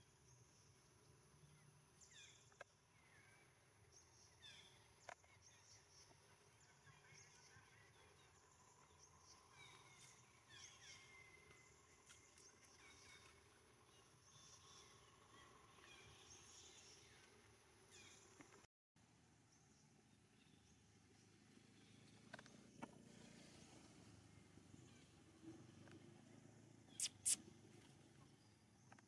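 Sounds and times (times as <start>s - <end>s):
high chirping calls: 27.0s - 27.4s.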